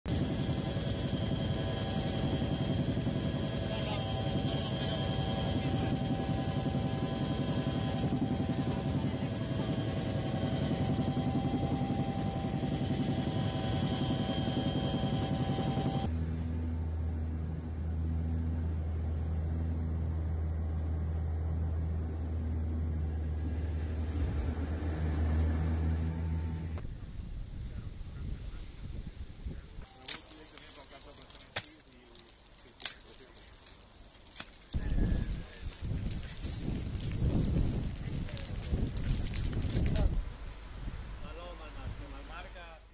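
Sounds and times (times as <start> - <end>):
helicopter engine and rotor: 0.1 - 26.8
high whine: 0.1 - 27.9.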